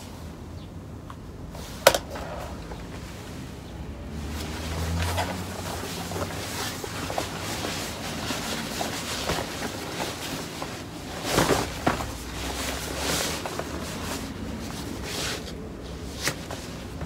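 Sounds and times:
rubber fabric rustling: 4.1 - 17.0.

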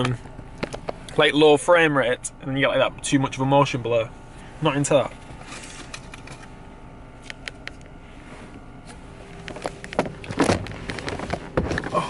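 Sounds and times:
handling rustles and knocks: 7.2 - 12.0.

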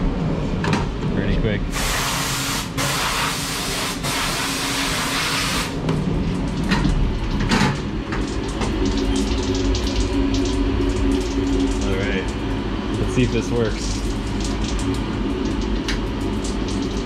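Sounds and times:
machine low hum: 0.0 - 17.0
air blow gun hissing: 1.7 - 5.7.

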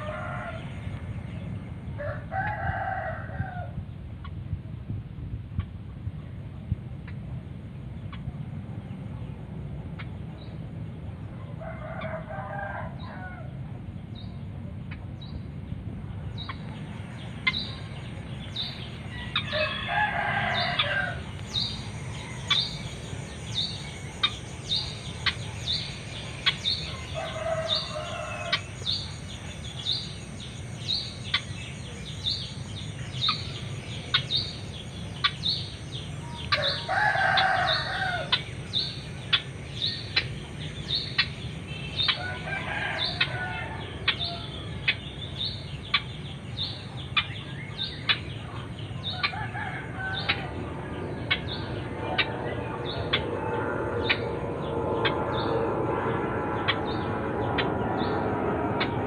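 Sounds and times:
rooster crowing: 0.0 - 0.8, 2.0 - 3.8, 11.6 - 13.6, 18.4 - 23.7, 26.6 - 29.4, 36.2 - 38.9, 42.0 - 44.9, 49.0 - 56.2
low steady hum: 0.0 - 59.0.

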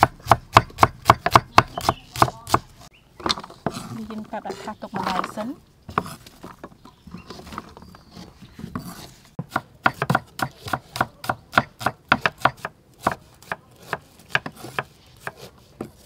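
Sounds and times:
knife chopping on wooden board: 0.0 - 2.7, 5.9 - 6.6, 8.6 - 16.0.

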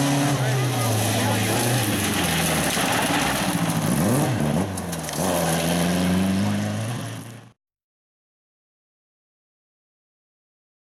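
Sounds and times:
rally car engine at full throttle: 0.0 - 7.6.

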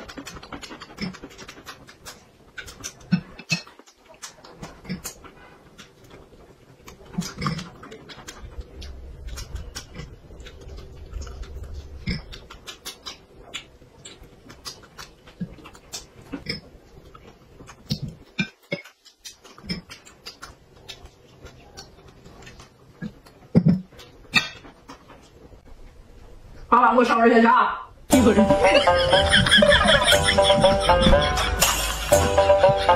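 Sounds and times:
person chewing and smacking: 0.0 - 25.6.

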